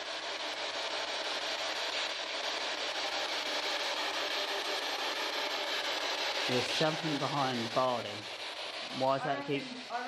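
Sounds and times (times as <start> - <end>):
radio static hiss: 6.2 - 10.0.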